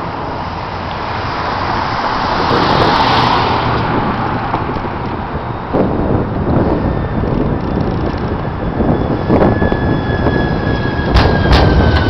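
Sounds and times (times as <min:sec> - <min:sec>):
sudden bump: 0:11.1 - 0:12.0.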